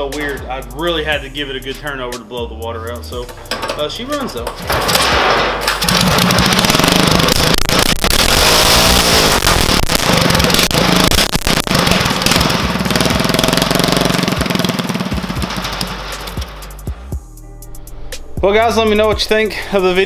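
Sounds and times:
go-kart engine revving: 5.6s - 16.6s.

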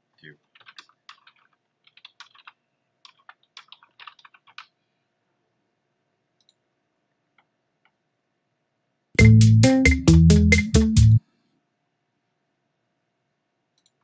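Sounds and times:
computer keyboard typing: 0.4s - 4.8s.

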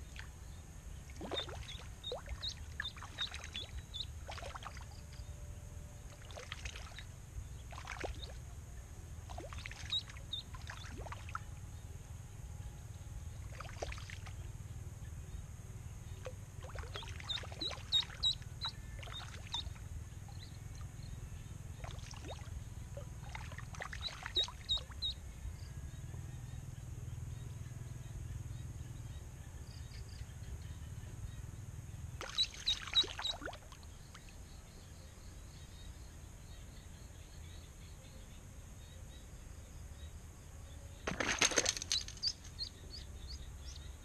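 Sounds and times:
small water splashes: 1.0s - 5.0s, 6.1s - 8.4s, 9.2s - 11.4s, 13.4s - 14.5s, 16.2s - 20.9s, 21.7s - 25.1s, 32.2s - 34.4s, 41.0s - 43.4s
duckling peeping: 1.3s - 4.4s, 16.9s - 19.8s, 24.1s - 25.2s.

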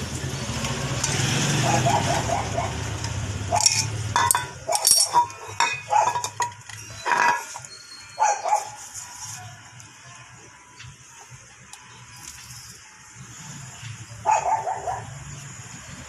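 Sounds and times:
dog barking: 1.6s - 2.9s, 5.8s - 6.2s, 8.2s - 8.8s, 14.2s - 15.2s
sharp metallic clinks: 3.0s - 8.6s.

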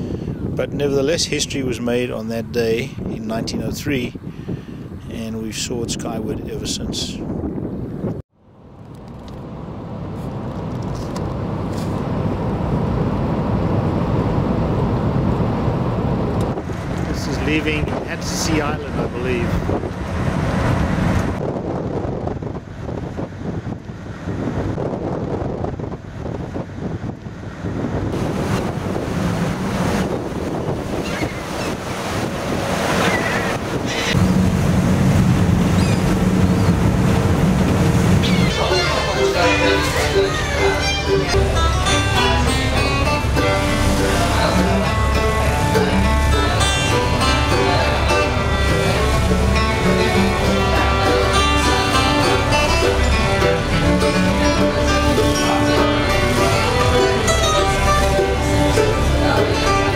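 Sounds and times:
wind buffeting microphone: 0.0s - 8.2s, 9.4s - 59.9s
tyre and engine road rumble: 8.5s - 59.9s
rushing boat wake: 8.7s - 59.9s
gull cries: 35.7s - 36.1s, 38.2s - 41.3s.

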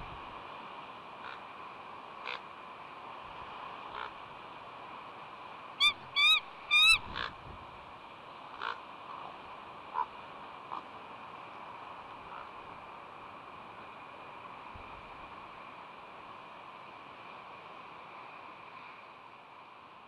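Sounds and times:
wind and surf hiss: 0.0s - 20.0s
eagle high calls: 5.8s - 7.3s
harsh short bird calls: 5.8s - 7.3s.

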